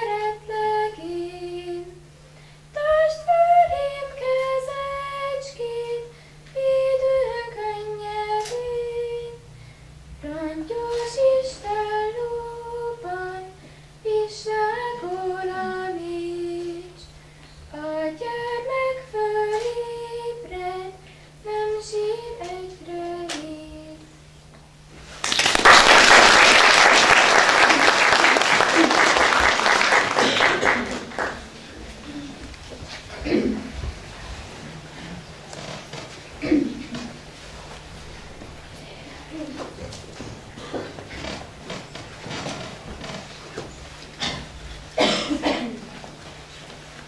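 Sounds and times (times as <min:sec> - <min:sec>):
woman singing: 0:02.8 - 0:09.4, 0:10.2 - 0:17.0, 0:17.7 - 0:24.1
audience applause: 0:25.1 - 0:31.6.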